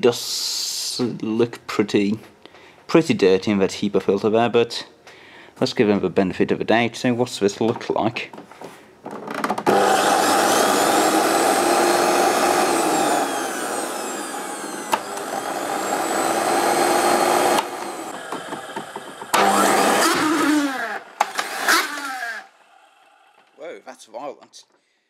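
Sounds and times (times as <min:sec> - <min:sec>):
vacuum cleaner motor whining: 0:09.6 - 0:23.6.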